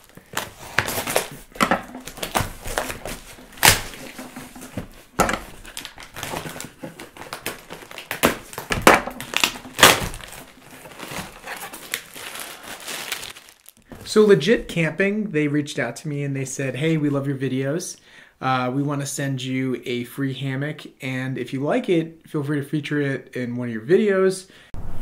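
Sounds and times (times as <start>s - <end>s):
cardboard box torn open: 0.0s - 13.7s
packing tape being slit: 0.0s - 13.8s
plastic packaging crinkling: 0.0s - 13.9s.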